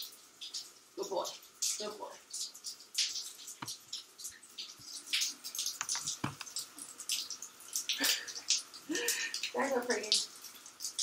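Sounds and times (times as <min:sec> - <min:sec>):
water splashing in a shower: 0:00.0 - 0:11.0.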